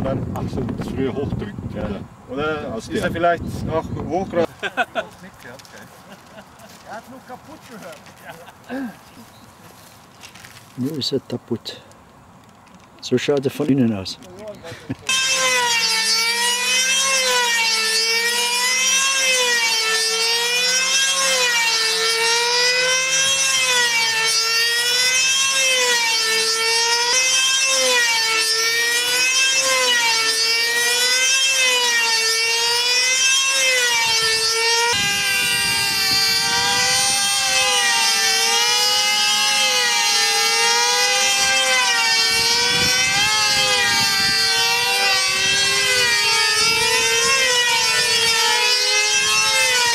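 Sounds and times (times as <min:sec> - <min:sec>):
model aircraft engine screaming: 0:15.1 - 0:49.9.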